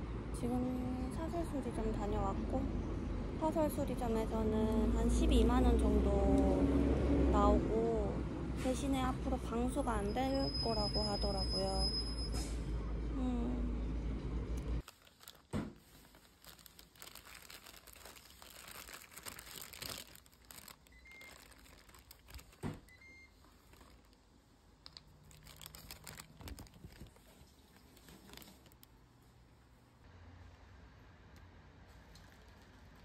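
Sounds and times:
low vehicle rumble: 0.0s - 14.8s
crinkling and rustling: 14.8s - 29.0s.

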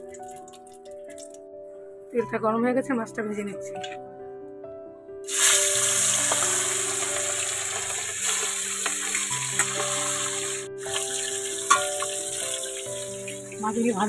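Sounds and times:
background music with held notes: 0.0s - 14.0s
fish sizzling in hot oil: 5.3s - 14.0s.

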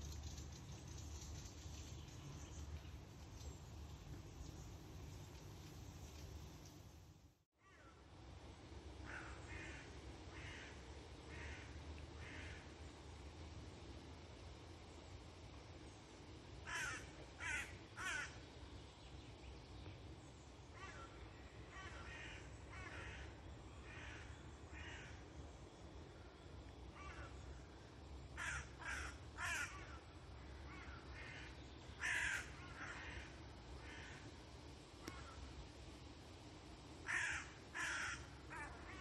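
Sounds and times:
faint crow caws: 7.6s - 8.1s, 9.0s - 12.9s, 16.6s - 18.4s, 20.6s - 25.4s, 26.9s - 34.4s, 35.0s - 35.5s, 37.0s - 39.0s
crows cawing: 9.0s - 12.7s, 16.6s - 18.4s, 20.7s - 25.2s, 26.9s - 27.4s, 28.4s - 34.3s, 37.0s - 39.0s.

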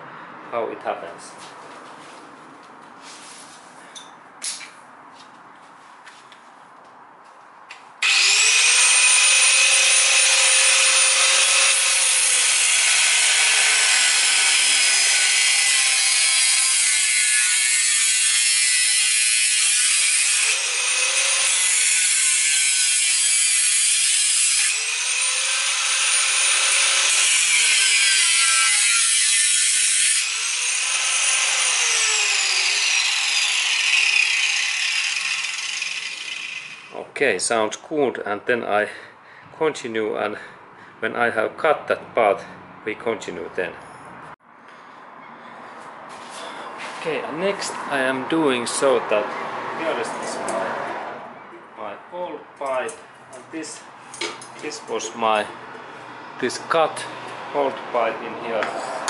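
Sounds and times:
angle grinder cutting metal pipe: 8.0s - 37.0s.

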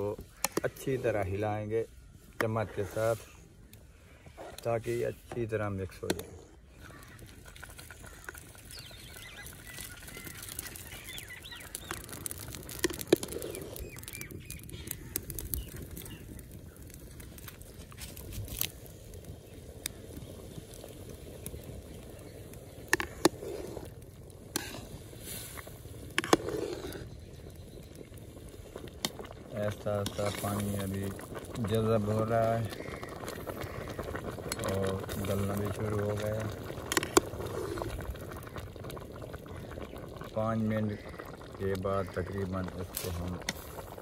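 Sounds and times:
water boiling in a pot: 0.0s - 1.7s, 4.6s - 44.0s
metal skimmer scraping a pot: 29.8s - 32.3s.

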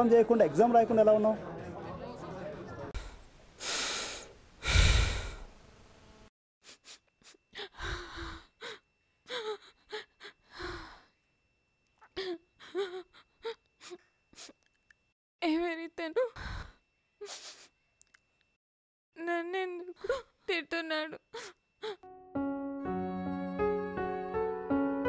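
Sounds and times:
woman sobbing: 6.7s - 11.1s, 12.0s - 14.6s, 15.4s - 17.7s, 19.3s - 22.1s.

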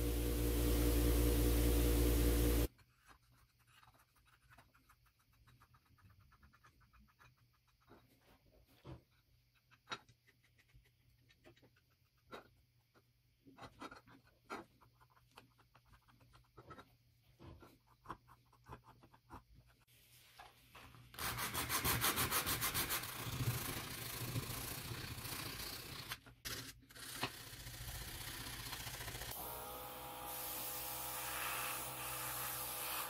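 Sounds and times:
sandpaper rubbing on metal: 21.2s - 26.1s.

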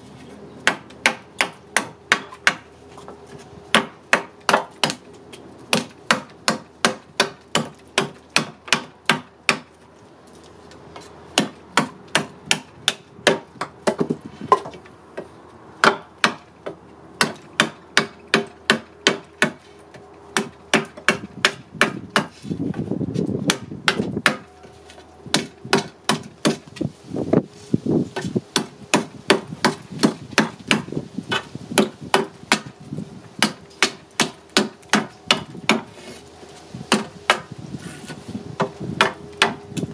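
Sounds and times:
knife chopping wood: 0.6s - 3.1s, 3.7s - 5.1s, 5.7s - 9.7s, 11.0s - 14.8s, 15.8s - 19.6s, 20.4s - 22.8s, 23.4s - 24.5s, 25.3s - 26.8s, 28.2s - 32.7s, 33.4s - 36.2s, 36.9s - 39.6s.

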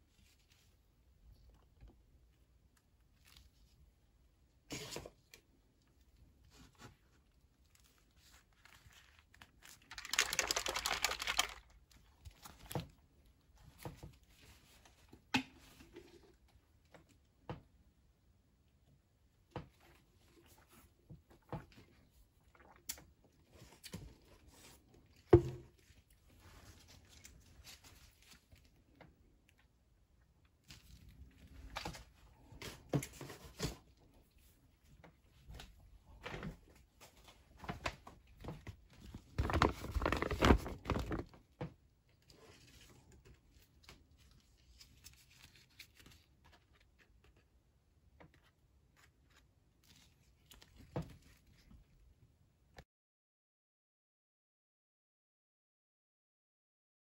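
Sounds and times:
plastic packaging crinkling: 7.7s - 12.8s, 38.9s - 41.4s.

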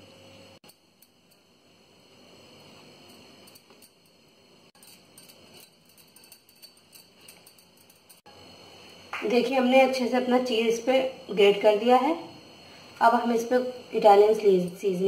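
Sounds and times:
cheese rasping on grater: 4.8s - 8.2s.

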